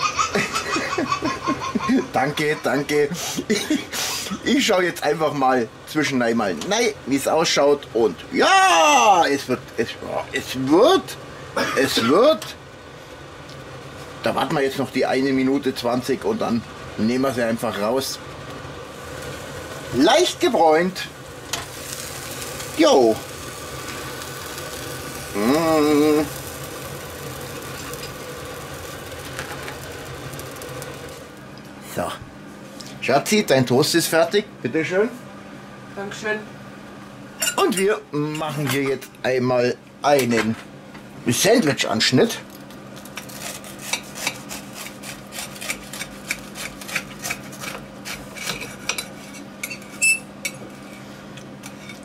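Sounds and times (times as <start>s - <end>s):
steady mechanical hum: 0.0s - 52.0s
knife sawing through crisp bread: 43.3s - 49.4s
knife scraping ceramic plate: 43.3s - 51.1s.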